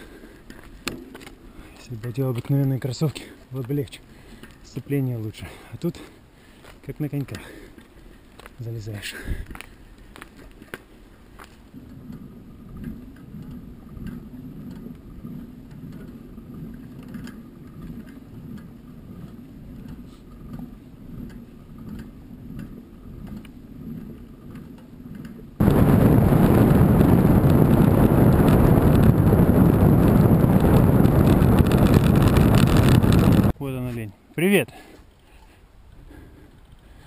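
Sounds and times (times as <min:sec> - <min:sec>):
wind buffeting microphone: 0:11.7 - 0:33.6
low rumbling: 0:20.6 - 0:33.6.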